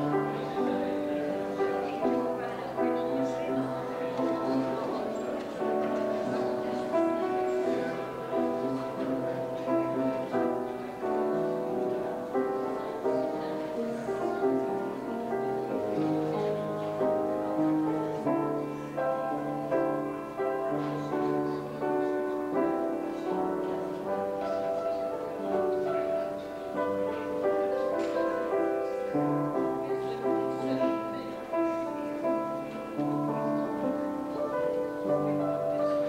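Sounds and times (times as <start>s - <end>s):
slow keyboard music: 0.0s - 36.0s.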